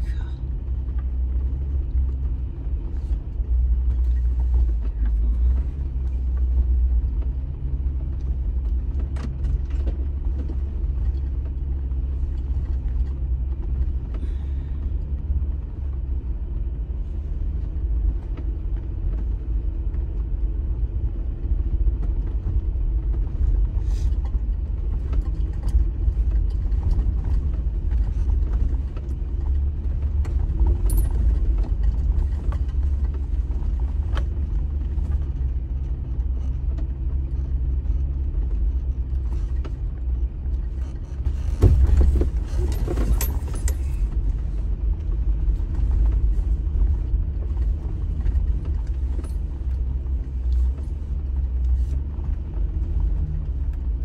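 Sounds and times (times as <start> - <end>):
low engine rumble: 0.0 - 54.0
small knocks and rattles: 24.9 - 52.1.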